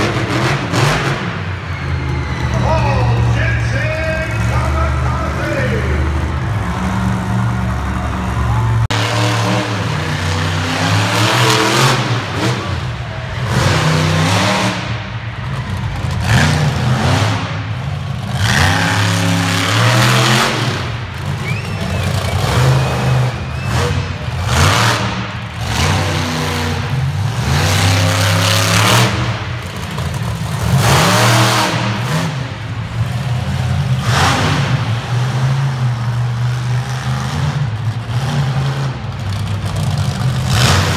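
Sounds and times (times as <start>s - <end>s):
monster truck engine revving: 0.0s - 40.9s.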